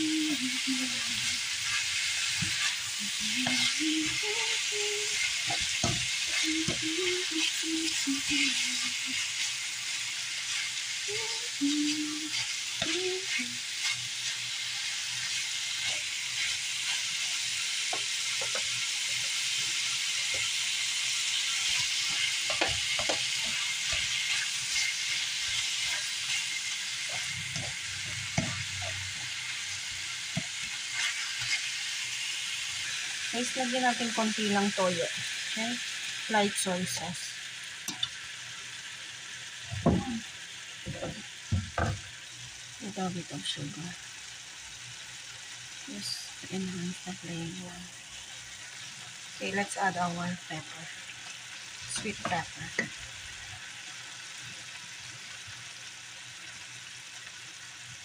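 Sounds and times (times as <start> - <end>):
meat and onion sizzling in a pan: 0.0 - 58.0
utensil scraping a pan: 21.4 - 29.2.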